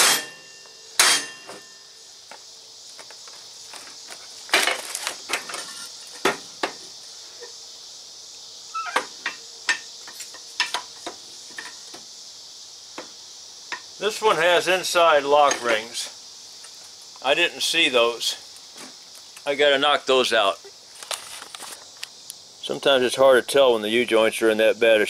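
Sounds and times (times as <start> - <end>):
metal clanks and knocks: 0.0 - 1.8, 8.9 - 12.0
steady high hiss: 0.0 - 25.0.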